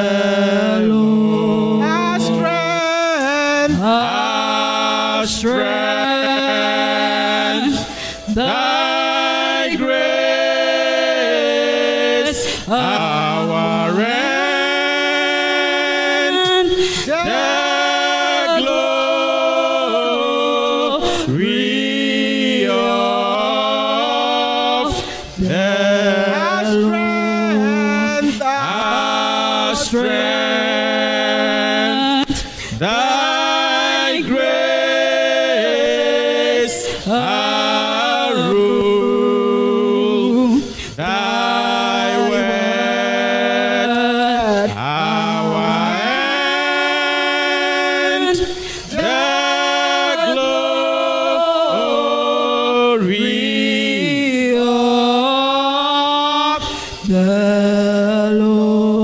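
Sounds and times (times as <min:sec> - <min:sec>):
woman singing a hymn: 0:01.8 - 0:02.5.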